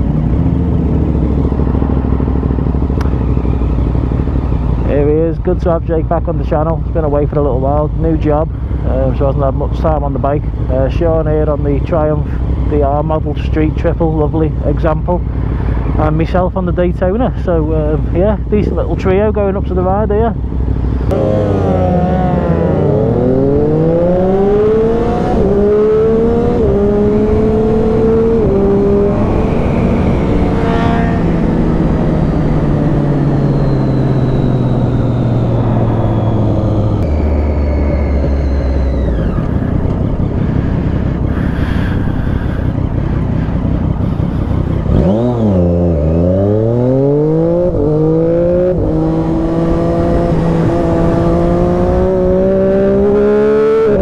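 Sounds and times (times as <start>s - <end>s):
motorcycle engine accelerating through gears: 0.0s - 54.0s
wind rush: 21.0s - 45.6s.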